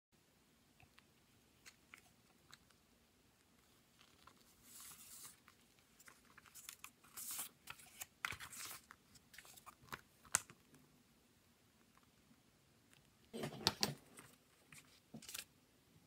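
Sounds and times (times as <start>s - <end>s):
paper rustling and crinkling: 3.6s - 10.6s, 13.4s - 15.5s.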